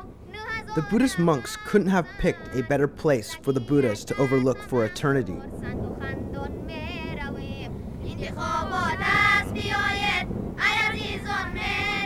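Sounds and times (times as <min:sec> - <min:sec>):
low background noise: 0:00.0 - 0:12.0
high-pitched voice singing: 0:03.4 - 0:08.8.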